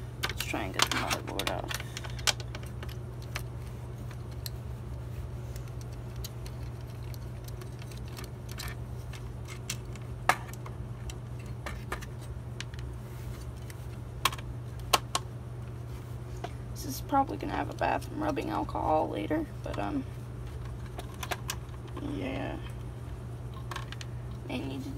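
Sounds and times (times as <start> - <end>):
steady low hum: 0.0 - 24.9.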